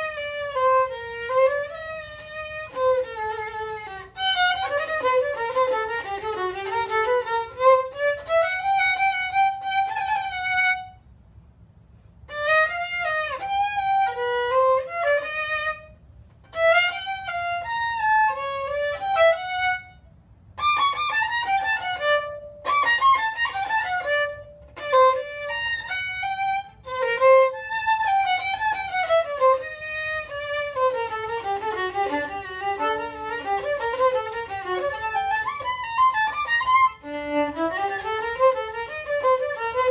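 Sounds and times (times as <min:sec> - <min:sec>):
solo violin: 0:00.0 - 0:11.1, 0:12.1 - 0:39.9.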